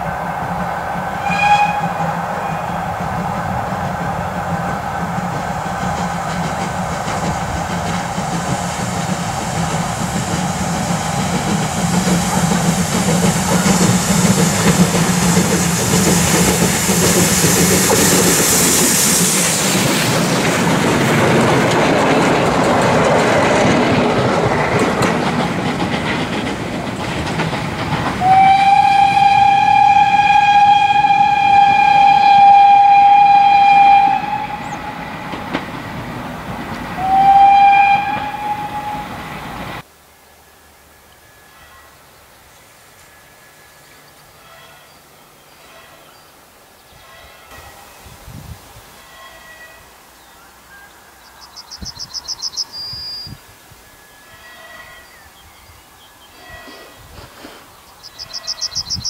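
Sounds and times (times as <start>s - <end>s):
steam hissing: 0.0s - 39.9s
steam locomotive passing: 0.0s - 59.0s
steam whistle blast: 1.1s - 2.8s, 28.2s - 35.1s, 37.0s - 39.2s.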